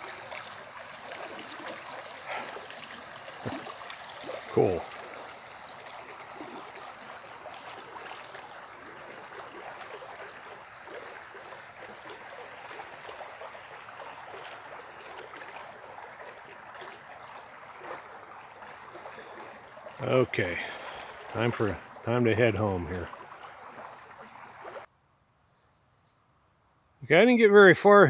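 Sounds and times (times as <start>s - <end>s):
creek flowing: 0.0s - 24.9s.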